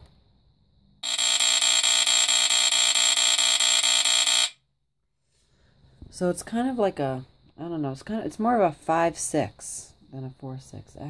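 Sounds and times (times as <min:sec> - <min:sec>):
smoke detector horn buzzing: 0:01.0 - 0:04.6.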